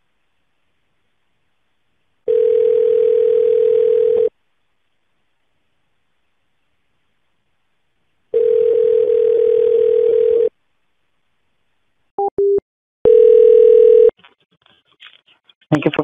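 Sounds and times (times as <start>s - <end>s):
telephone dial tone: 2.3s - 4.3s, 8.4s - 10.5s, 13.1s - 14.1s
telephone ringing tone: 2.3s - 4.3s, 8.4s - 10.5s, 13.0s - 14.1s.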